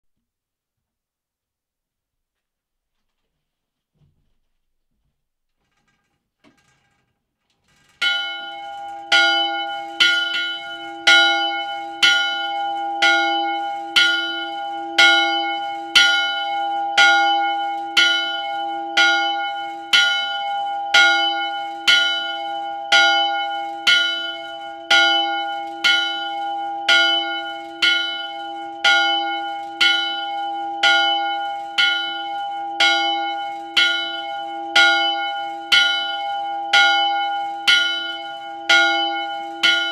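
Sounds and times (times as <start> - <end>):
church bell ringing: 7.7 - 39.9.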